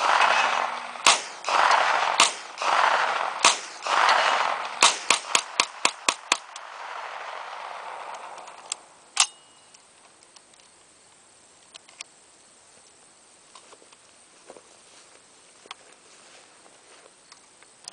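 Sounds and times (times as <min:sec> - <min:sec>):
gunshots: 0:00.0 - 0:09.3
gun handling clicks: 0:08.1 - 0:10.7
sharp metallic clack: 0:09.2 - 0:09.8.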